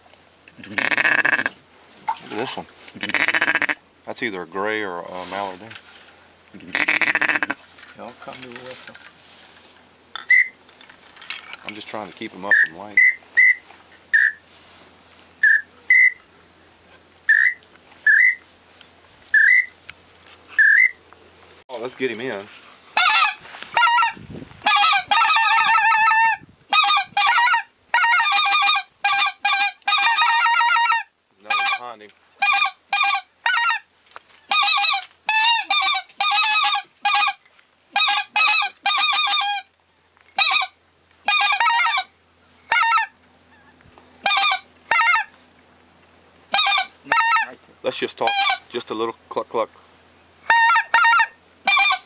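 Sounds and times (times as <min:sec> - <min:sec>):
goose call honks and clucks: 0:00.5 - 0:03.8, 0:06.6 - 0:07.7, 0:10.2 - 0:10.6, 0:12.5 - 0:14.5, 0:15.4 - 0:16.3, 0:17.3 - 0:18.5, 0:19.3 - 0:19.8, 0:20.5 - 0:21.0, 0:22.9 - 0:39.7, 0:40.4 - 0:45.4, 0:46.5 - 0:48.9, 0:50.4 - 0:52.0.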